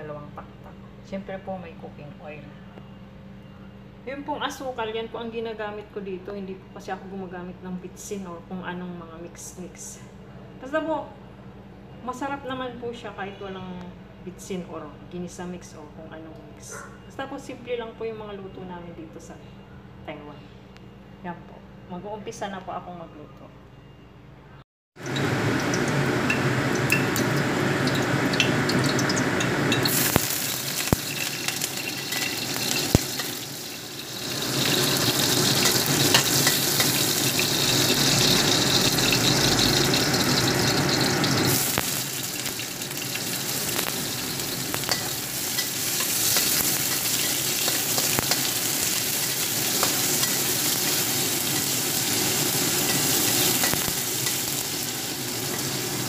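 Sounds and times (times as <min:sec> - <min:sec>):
hot oil sizzling in a wok: 0:25.0 - 0:56.0
metal spatula clinking on pan: 0:31.1 - 0:33.4, 0:44.8 - 0:48.5, 0:49.7 - 0:51.8.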